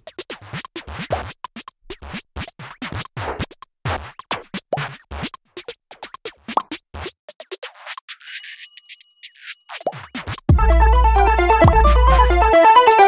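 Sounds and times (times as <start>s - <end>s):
record scratching: 0.1s - 8.2s
chopped electronic music: 9.7s - 13.0s.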